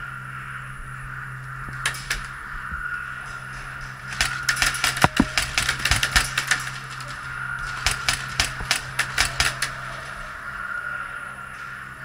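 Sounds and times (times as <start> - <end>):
pellets striking wooden walls: 4.1 - 9.8.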